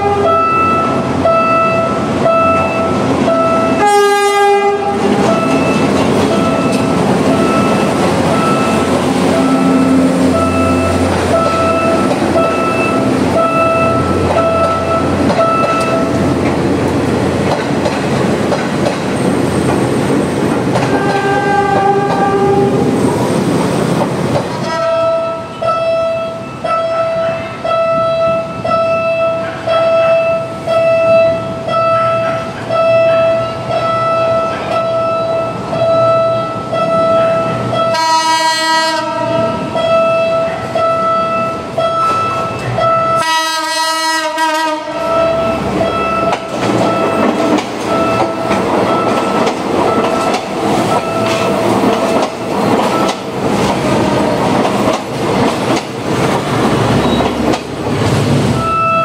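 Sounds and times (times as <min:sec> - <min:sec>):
train horn blasts: 0:00.0 - 0:16.2, 0:20.8 - 0:22.8, 0:24.6 - 0:47.2
train wheels clattering on rails: 0:00.7 - 0:25.9, 0:36.8 - 0:59.0
pulsing warning tone: 0:05.2 - 0:16.2.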